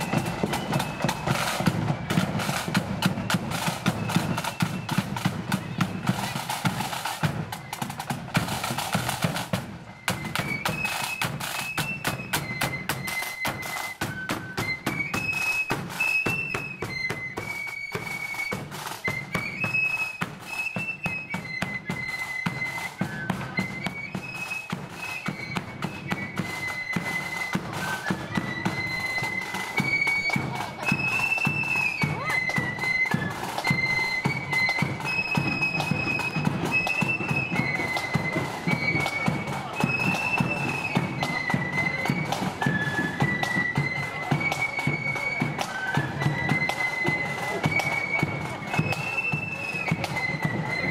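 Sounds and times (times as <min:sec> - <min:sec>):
flute melody: 0:00.0 - 0:50.9
snare drum beats: 0:00.0 - 0:50.9.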